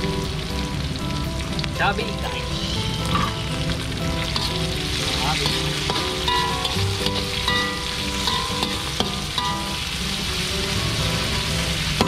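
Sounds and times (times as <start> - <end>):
onions sizzling in hot oil: 0.0 - 12.0
metal spatula scraping wok: 2.6 - 3.5, 4.2 - 10.2.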